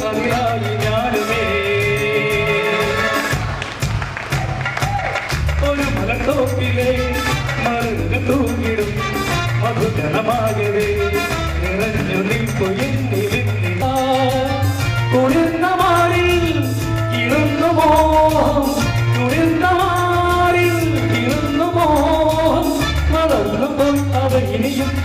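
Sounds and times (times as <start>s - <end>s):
person singing: 0.0s - 3.5s, 5.4s - 25.0s
pulsing bass beat: 0.0s - 25.0s.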